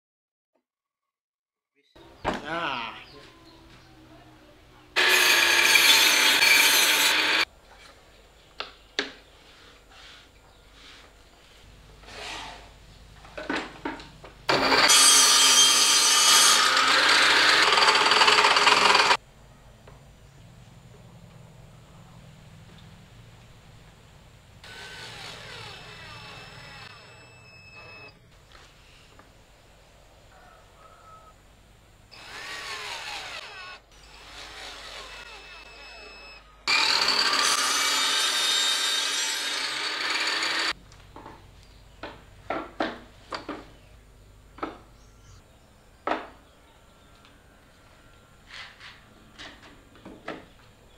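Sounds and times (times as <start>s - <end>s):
table saw cutting wood: 5.0s - 7.5s, 14.5s - 19.2s, 24.6s - 28.1s, 32.1s - 40.8s.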